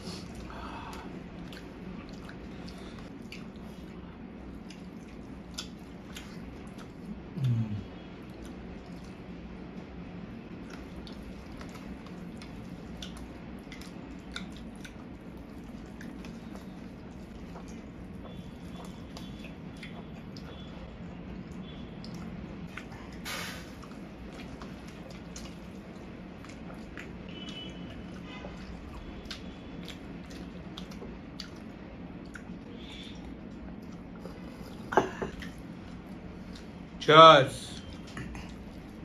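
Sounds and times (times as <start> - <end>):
people chewing: 0.0 - 36.9, 37.7 - 39.0
small mouth clicks and smacks: 0.3 - 9.3, 10.6 - 20.7, 21.4 - 36.9
short low vocal sound: 7.3 - 8.0
wet squishing of rice: 7.9 - 20.7, 21.4 - 34.6.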